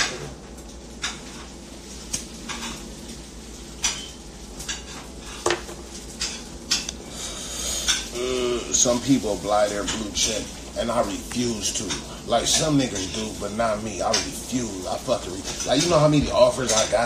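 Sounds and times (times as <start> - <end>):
low steady background noise: 0.0 - 17.0.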